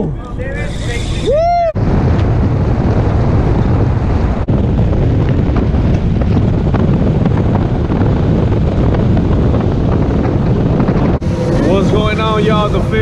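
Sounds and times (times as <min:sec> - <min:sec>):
boat rushing over water: 0:00.0 - 0:13.0
wind noise on microphone: 0:00.0 - 0:13.0.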